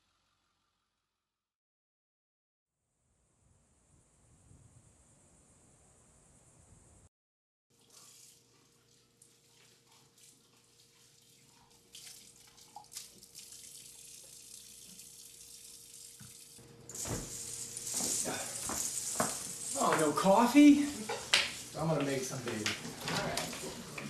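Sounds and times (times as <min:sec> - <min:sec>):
tap water running into sink: 0:11.8 - 0:21.6.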